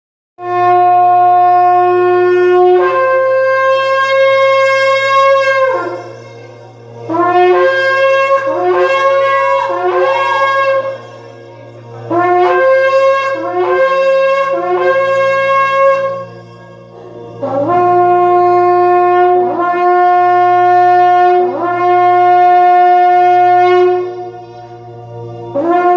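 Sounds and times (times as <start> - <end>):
shofar blasts: 0.4 - 25.9.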